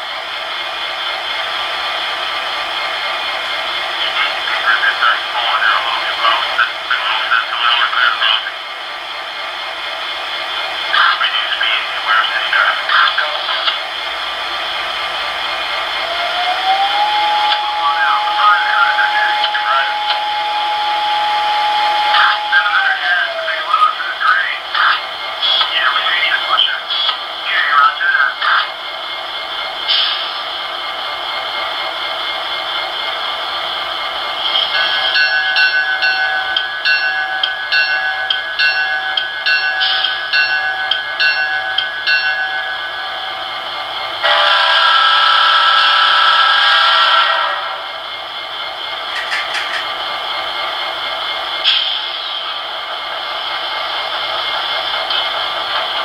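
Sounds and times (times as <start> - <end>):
model locomotive diesel whine: 0.0 - 56.0
air horn blast: 44.2 - 47.7.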